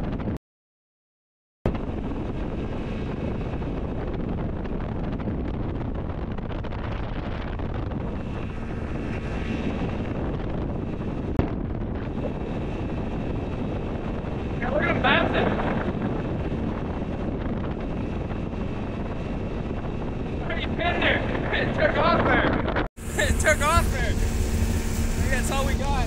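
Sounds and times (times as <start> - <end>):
wind buffeting microphone: 0.0 - 0.4, 1.7 - 26.0
speed boat engine drone: 1.7 - 26.0.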